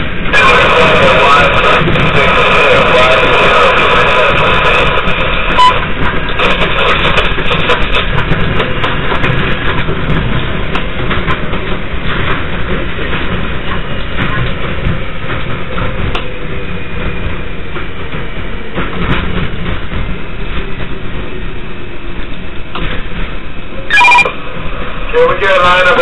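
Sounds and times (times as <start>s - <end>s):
train wheels rumbling on rails: 0.0s - 26.0s
wheels clicking over rail joints: 4.2s - 23.9s.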